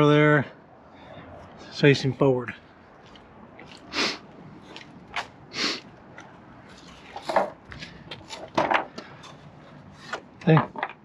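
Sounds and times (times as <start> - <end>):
breathy hissing bursts: 3.9 - 4.3, 5.5 - 5.8
step ladder knocking and rattling: 7.2 - 9.1.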